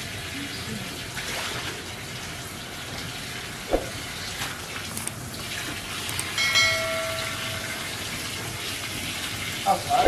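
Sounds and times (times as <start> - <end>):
steady high tone: 6.3 - 8.2.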